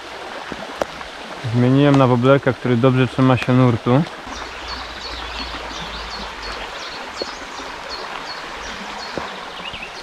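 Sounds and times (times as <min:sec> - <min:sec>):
river rushing over stones: 0:00.0 - 0:10.0
bird chirping: 0:04.3 - 0:10.0.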